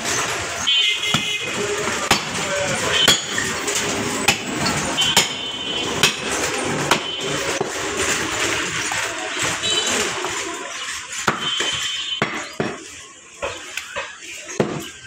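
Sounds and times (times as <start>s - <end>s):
cleaver chopping on wooden block: 6.9s - 7.1s.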